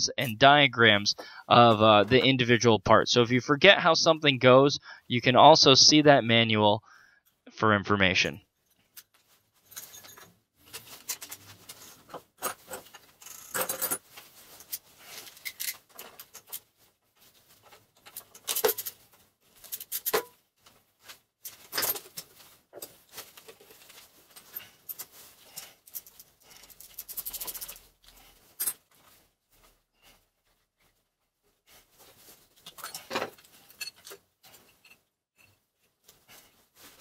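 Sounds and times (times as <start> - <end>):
metal parts clinking and scraping: 9.6 - 16.7, 17.6 - 20.4, 21.4 - 28.9, 32.6 - 35.6.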